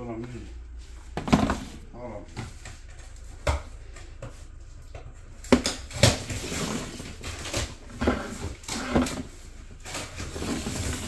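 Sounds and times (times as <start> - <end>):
plastic drawer sliding out: 6.0 - 11.0.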